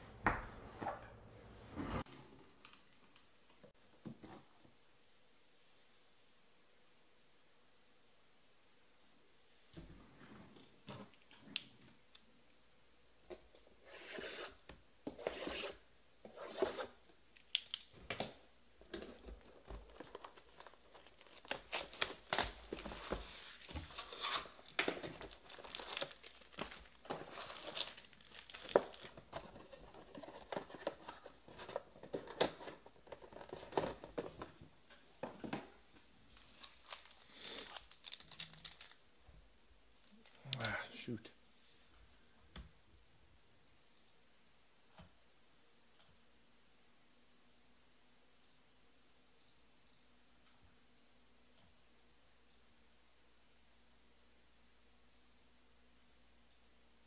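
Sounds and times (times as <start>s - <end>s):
sharp snaps and clicks: 17.3s - 17.9s
foil packs rustling and crinkling: 19.0s - 34.4s, 36.3s - 39.0s.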